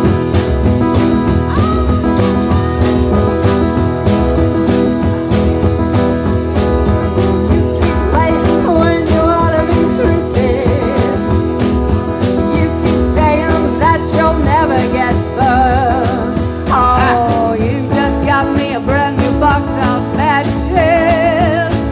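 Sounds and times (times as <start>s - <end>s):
acoustic guitar: 0.0s - 21.9s
drums keeping a steady beat: 0.0s - 21.9s
woman singing into a microphone: 7.8s - 11.4s, 12.4s - 21.9s.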